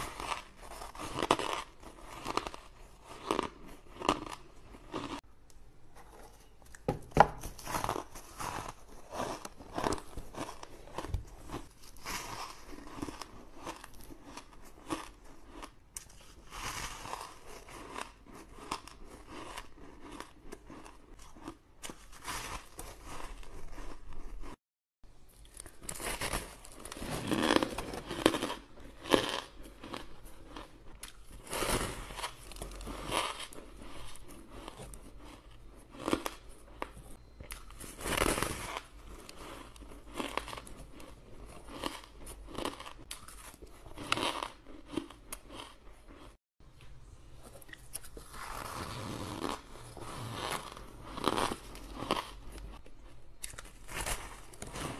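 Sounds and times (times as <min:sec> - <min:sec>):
chewing ice: 0:00.0 - 0:05.2, 0:07.6 - 0:24.6, 0:26.8 - 0:46.4.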